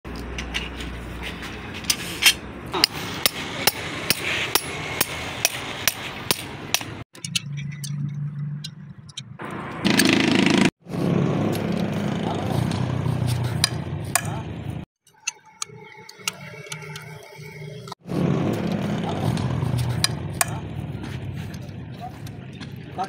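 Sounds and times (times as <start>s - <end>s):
metal tools knocking on gear: 6.3s - 9.3s.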